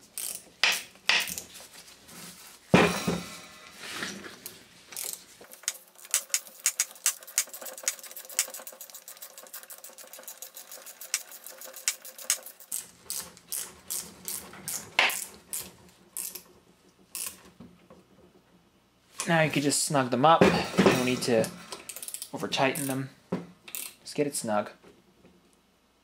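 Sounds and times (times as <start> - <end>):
ratchet wrench clicking: 0.1 - 1.4, 5.0 - 15.3, 16.2 - 16.4, 17.1 - 17.4, 21.9 - 23.0, 23.7 - 24.0
knocks: 2.7 - 3.4.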